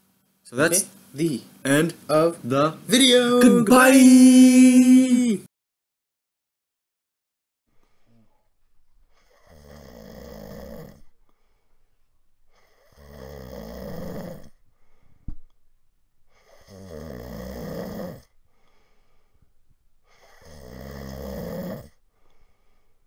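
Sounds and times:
person snoring: 9.2 - 11.1, 12.6 - 14.6, 16.4 - 18.3, 20.1 - 22.4.

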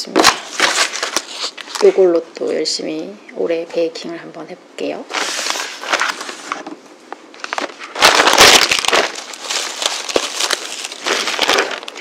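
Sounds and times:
packaging wrap crinkling: 0.1 - 2.0, 5.2 - 12.0.

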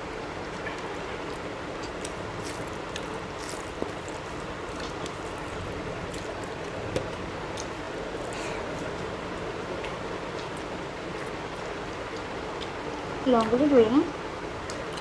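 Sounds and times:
fingers squelching rice and curry: 0.7 - 9.0.

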